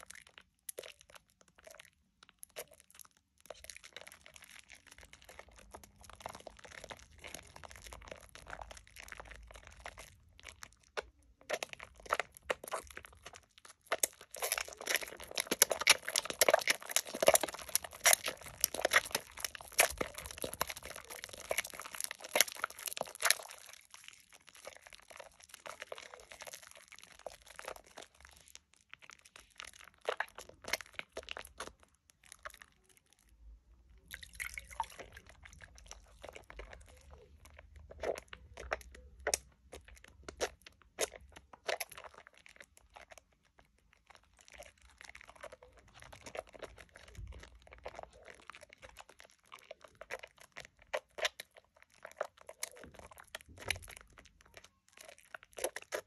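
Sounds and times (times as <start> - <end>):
soapy hands squelching lather: 3.4 - 32.6, 55.0 - 56.0.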